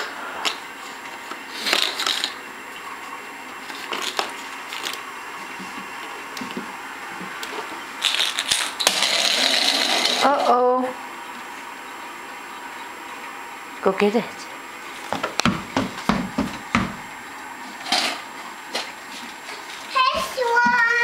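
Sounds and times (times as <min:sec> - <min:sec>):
plastic egg knocking on fridge door: 0:15.1 - 0:17.0.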